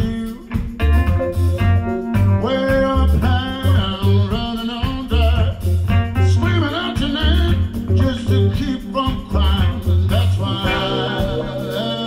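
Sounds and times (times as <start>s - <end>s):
blues-soul band playing live: 0.0s - 12.0s
tambourine: 0.0s - 12.0s
saxophone: 6.4s - 12.0s.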